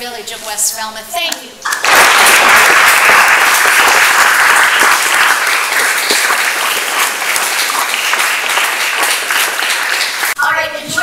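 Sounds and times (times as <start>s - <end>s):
audience applauding: 1.6s - 10.4s.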